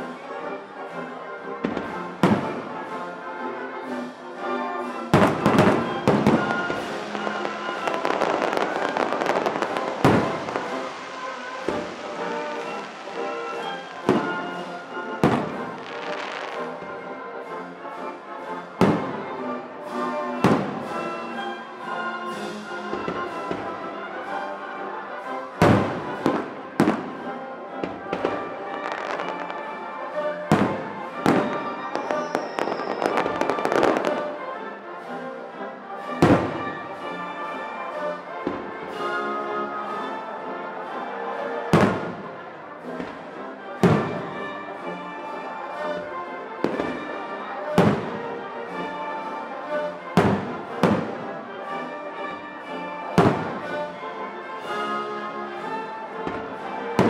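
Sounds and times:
music: 0:00.0 - 0:57.0
fireworks bursting with bangs: 0:01.6 - 0:02.8, 0:05.1 - 0:16.9, 0:18.8 - 0:19.3, 0:20.4 - 0:21.0, 0:25.6 - 0:27.2, 0:27.8 - 0:34.4, 0:41.7 - 0:42.3, 0:43.8 - 0:44.5, 0:46.6 - 0:48.2, 0:50.2 - 0:51.3, 0:53.2 - 0:53.9.

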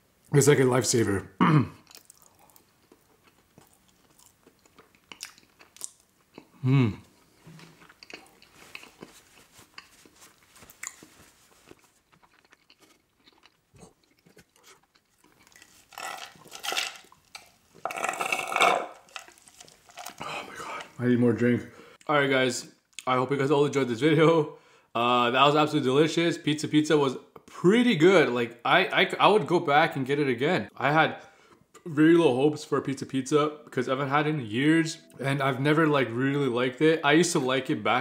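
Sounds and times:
wet chewing mouth sounds: 0:01.8 - 0:06.6, 0:07.3 - 0:16.5
person humming: 0:06.6 - 0:07.1.

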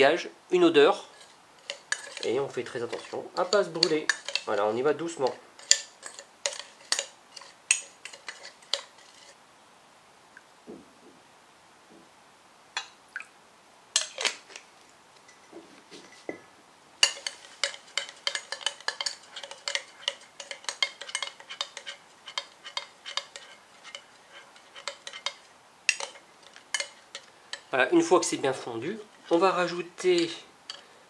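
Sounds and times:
metal spoon clinking in glass jar: 0:01.6 - 0:04.5.

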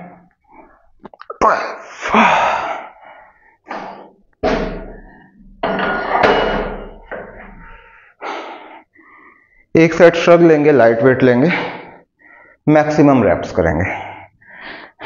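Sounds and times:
weight plate thudding on floor: 0:03.7 - 0:07.5.

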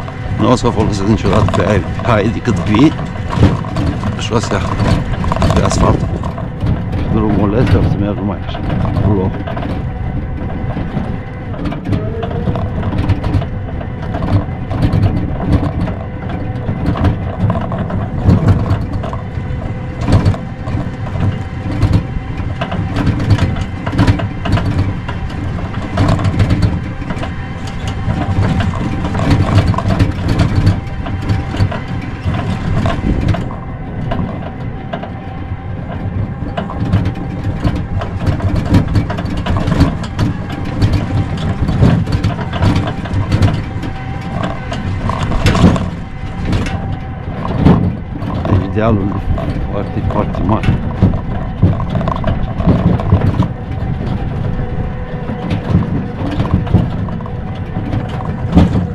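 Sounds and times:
body rattling and knocking: 0:00.0 - 0:58.9
tricycle motor droning: 0:00.0 - 0:58.9.

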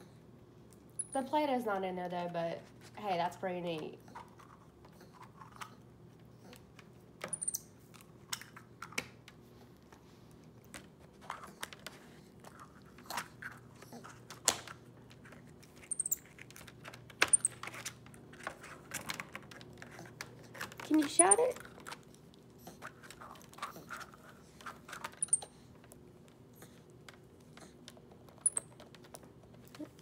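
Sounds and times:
monkey squeaking: 0:15.9 - 0:16.2, 0:17.3 - 0:17.5, 0:21.2 - 0:21.6, 0:25.2 - 0:25.4, 0:28.4 - 0:28.6.

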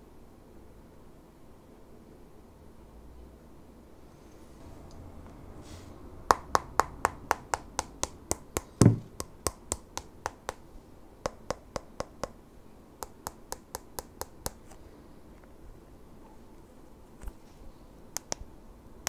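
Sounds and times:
dull heavy thump: 0:08.8 - 0:09.2.

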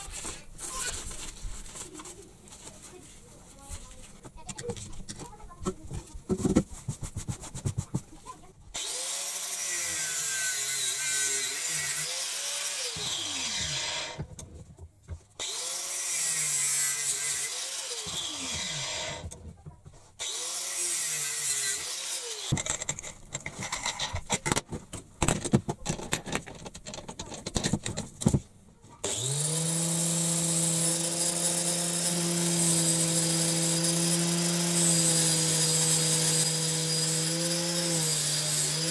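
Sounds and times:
angle grinder grinding metal: 0:08.8 - 0:14.2, 0:15.4 - 0:19.3, 0:20.2 - 0:24.3, 0:29.0 - 0:38.9
power tool running under load: 0:08.8 - 0:14.2, 0:15.4 - 0:19.3, 0:29.0 - 0:38.9.

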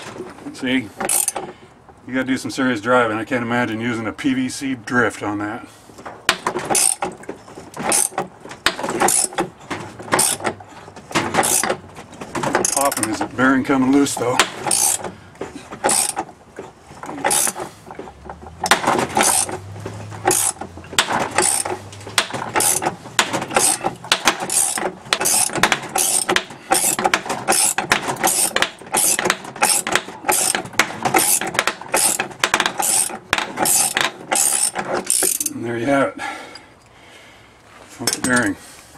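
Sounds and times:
ratchet wrench clicking: 0:01.1 - 0:01.4, 0:14.7 - 0:15.0, 0:15.9 - 0:16.2, 0:17.3 - 0:17.6, 0:20.3 - 0:20.6, 0:21.4 - 0:21.7, 0:22.6 - 0:22.8, 0:23.5 - 0:23.8, 0:24.5 - 0:35.5.

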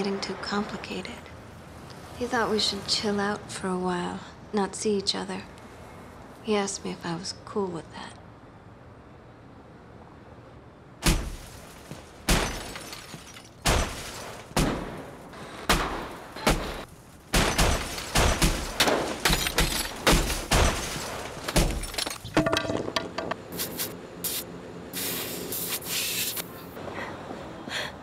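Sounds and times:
heavy blows striking a car: 0:11.0 - 0:11.6, 0:13.6 - 0:22.0.

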